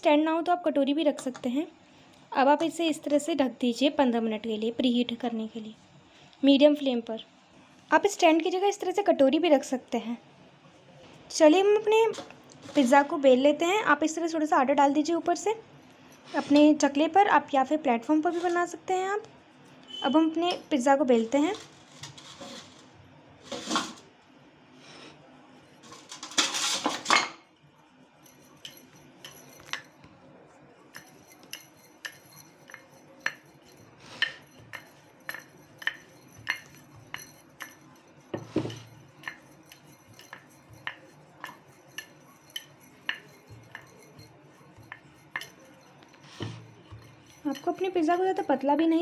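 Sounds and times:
rolling pin rubbing dough: 27.9 - 49.0.

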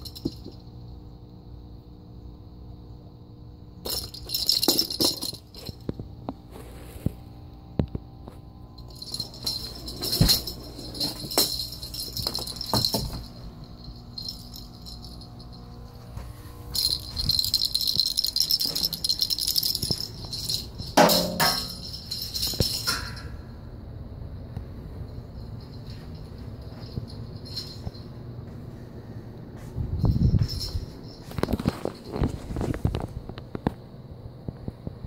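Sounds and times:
small bell jingling: 0.0 - 0.7, 3.8 - 5.8, 8.8 - 23.5, 25.0 - 28.3, 29.9 - 32.6.

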